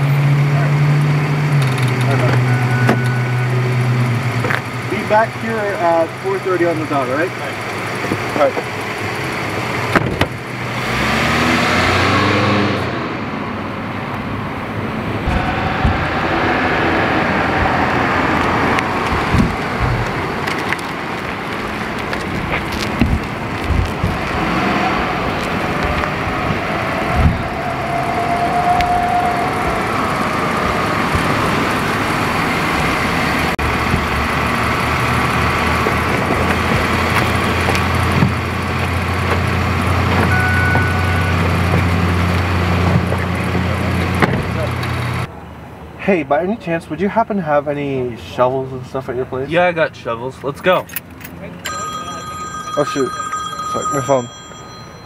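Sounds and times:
car driving off: 0.0 - 46.0
outdoor background noise: 0.0 - 55.0
car engine idling: 0.5 - 10.7, 29.2 - 45.3
car door shutting: 1.6 - 3.3, 9.9 - 10.4.

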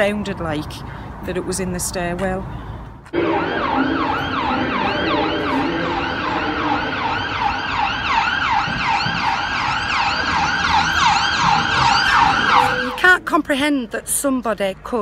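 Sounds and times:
emergency sirens yelping: 3.2 - 13.1.

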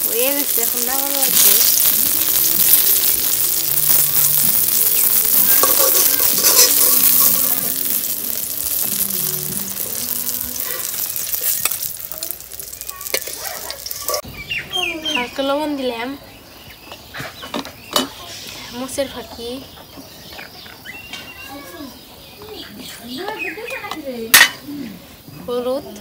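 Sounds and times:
eggplant sizzling in oil: 0.0 - 26.0
steel spoon scraping pan: 5.5 - 7.5.

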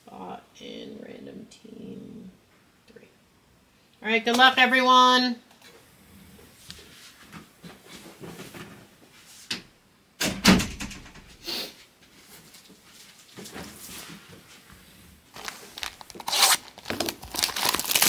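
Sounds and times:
plastic wrap rustling: 12.2 - 18.0.

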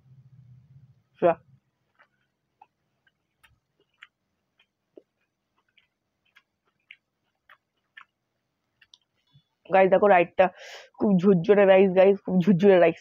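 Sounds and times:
mouth clicks of chewing: 1.9 - 9.4.

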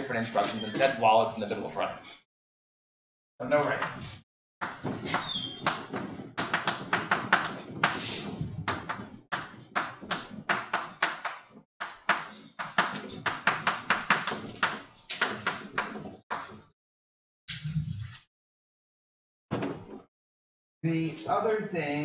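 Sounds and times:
chalk writing on blackboard: 9.4 - 16.6.

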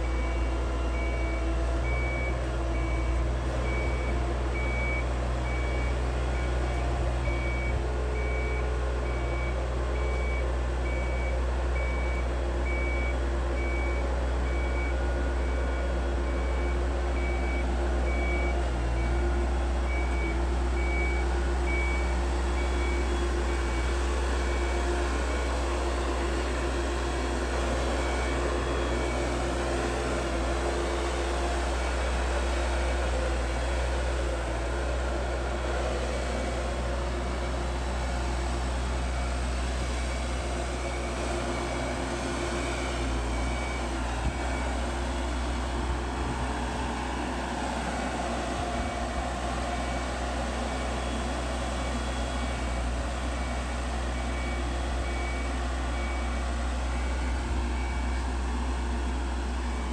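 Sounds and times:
boat lift engine humming: 0.0 - 59.9.

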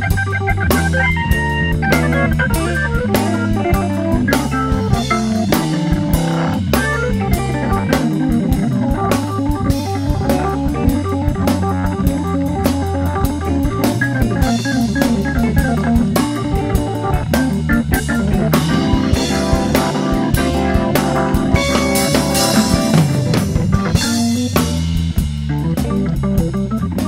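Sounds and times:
drums playing swing: 0.0 - 27.0
organ with bass line: 0.0 - 27.0.

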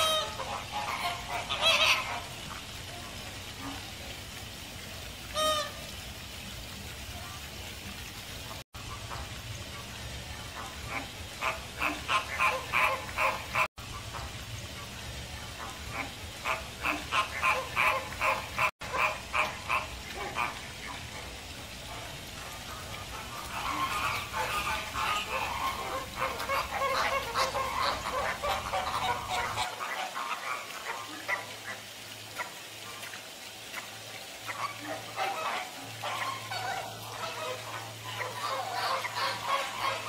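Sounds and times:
flock of flamingos calling: 0.0 - 3.9, 5.3 - 5.9, 10.4 - 14.2, 15.4 - 33.1, 33.7 - 40.0.

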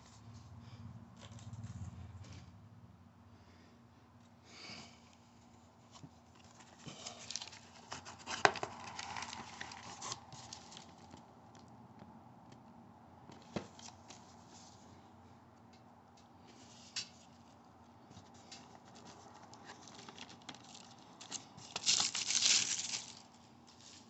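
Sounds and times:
cardboard box and plastic rustling: 5.9 - 11.3, 16.5 - 24.0.

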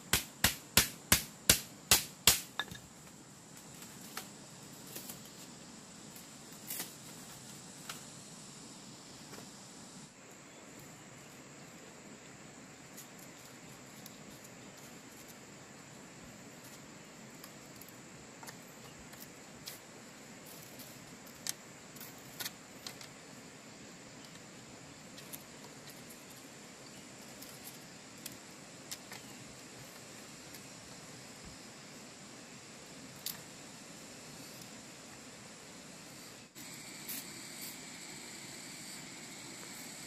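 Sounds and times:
quiet forest background: 0.0 - 40.0
steady high-pitched hiss: 0.0 - 40.0
high-pitched insect drone: 26.0 - 40.0.

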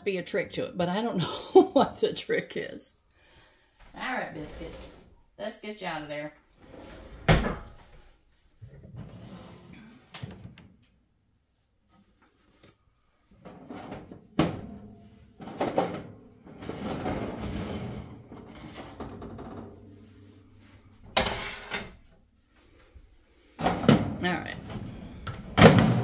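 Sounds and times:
oven rack rattling and scraping: 13.5 - 20.4, 21.0 - 22.0.

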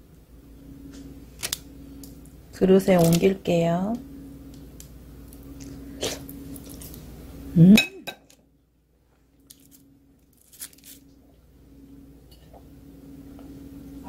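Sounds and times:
parchment paper rustling: 2.9 - 3.4, 9.5 - 11.0
person humming mm-hmm: 7.5 - 7.9.

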